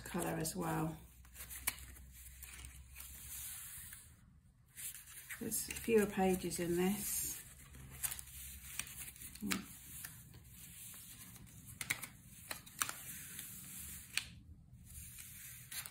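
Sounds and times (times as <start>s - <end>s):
paper rustling: 0.0s - 4.1s, 4.7s - 15.9s
paper clicking against table: 11.3s - 13.4s.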